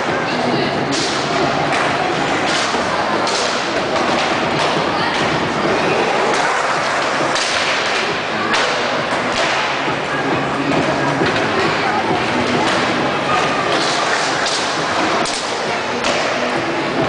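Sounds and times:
skateboards clacking on ground: 0.9 - 9.9, 12.3 - 16.6
skateboard wheels rolling: 4.0 - 8.0.

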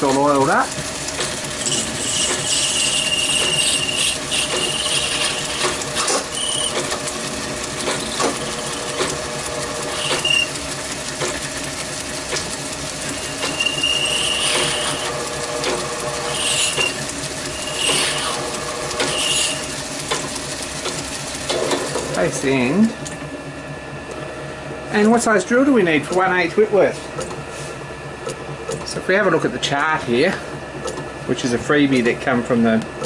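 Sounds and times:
lathe motor and gear whine: 0.0 - 33.0
cutting tool squealing on metal: 1.6 - 6.9, 9.9 - 10.6, 13.2 - 15.2, 16.3 - 18.4, 19.0 - 19.7.

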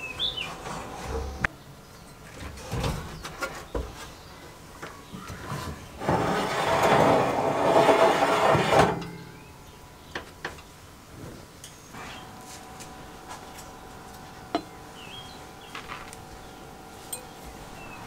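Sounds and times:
oven rack scraping on runners: 0.0 - 1.5, 5.4 - 9.3
oven door opening: 5.4 - 9.3.

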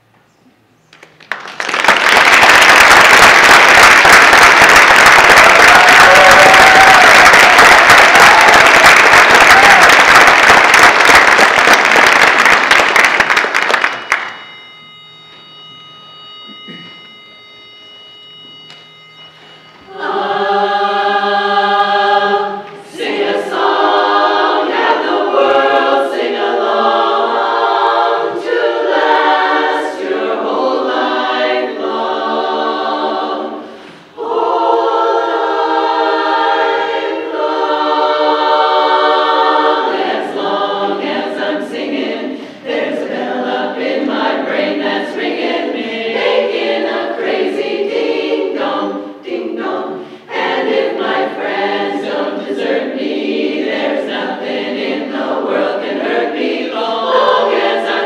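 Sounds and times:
women's chorus singing a cappella: 19.9 - 58.0.

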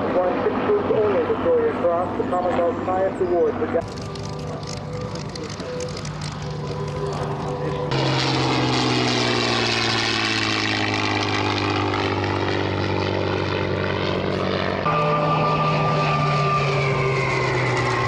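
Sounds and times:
piston aircraft engine flypast: 0.0 - 18.0.

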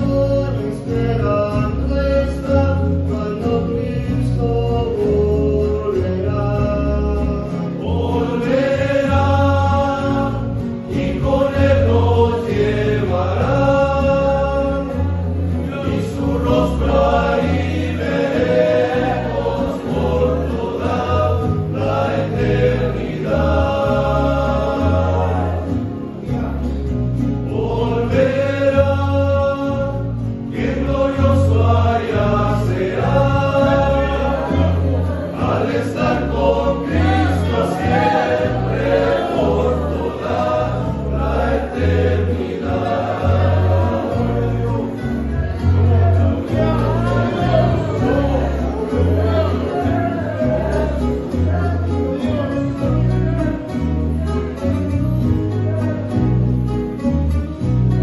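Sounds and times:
choir singing a hymn: 0.0 - 52.5
deep bass line: 0.0 - 58.0
strummed guitars: 0.0 - 58.0.

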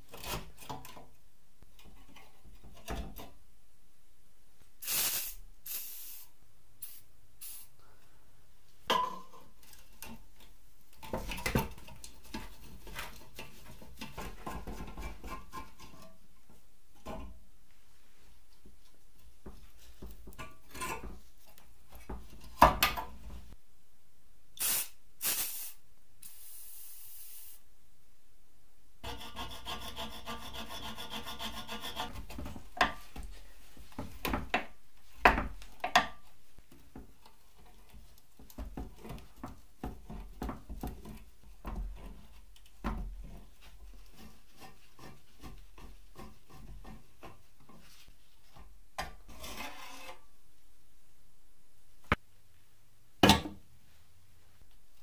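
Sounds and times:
tools scraping rusted metal: 49.3 - 50.2.

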